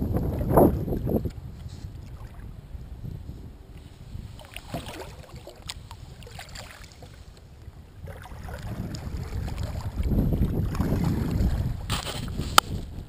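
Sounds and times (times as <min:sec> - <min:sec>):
wind rumble on microphone: 0:00.0 - 0:13.0
water splashing and dripping: 0:04.4 - 0:07.1, 0:08.0 - 0:12.0.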